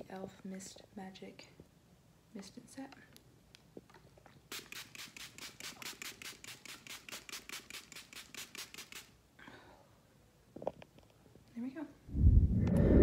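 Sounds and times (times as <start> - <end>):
spray bottle misting puffs: 4.5 - 9.2.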